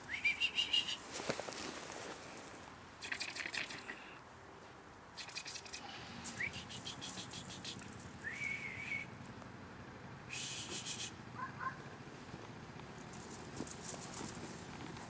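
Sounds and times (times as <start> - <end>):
wavering whistle-like bird call: 0.1 - 1.0, 6.4 - 9.1, 10.3 - 11.2.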